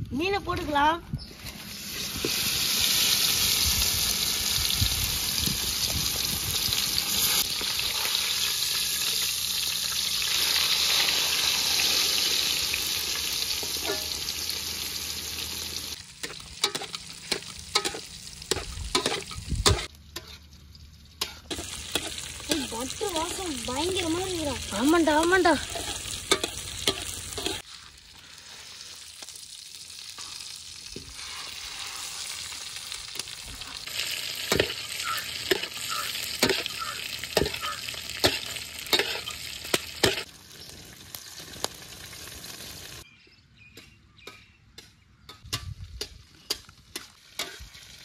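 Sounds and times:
fish sizzling in butter: 1.5 - 43.0, 46.6 - 48.0
metal spatula scraping pot: 16.2 - 20.5, 24.8 - 27.6, 34.5 - 40.2.

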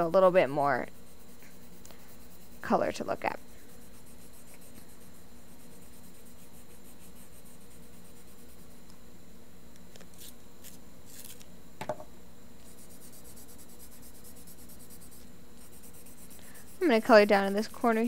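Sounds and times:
pencil scribbling on paper: 0.0 - 8.8, 12.6 - 18.0
light knock: 11.8 - 12.1.

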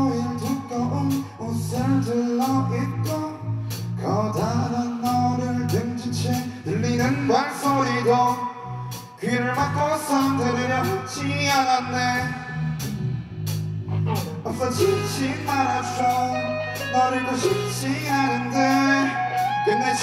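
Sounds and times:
drum kit with cymbals and snare: 0.0 - 20.0
electric bass: 0.0 - 20.0
electric guitars: 10.4 - 20.0.

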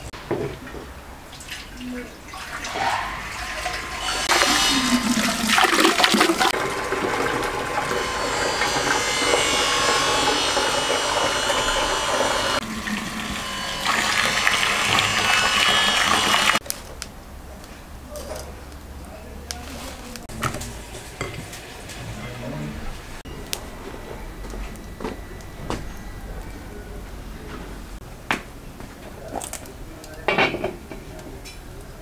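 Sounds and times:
water gushing from a hose: 1.3 - 9.1, 10.5 - 16.6.

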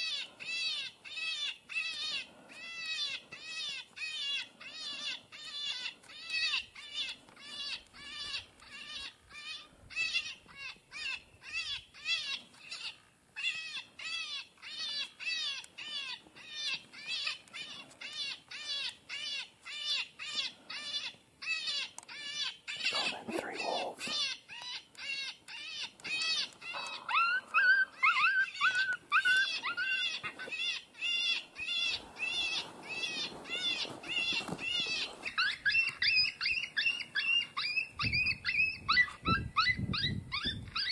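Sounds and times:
lower cries: 26.1 - 31.9
high-pitched distress squeals: 26.1 - 36.5.

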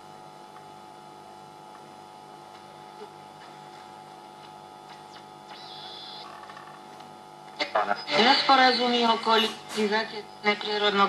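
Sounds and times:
mains hum: 0.0 - 11.0
faint radio hiss: 7.5 - 11.0.

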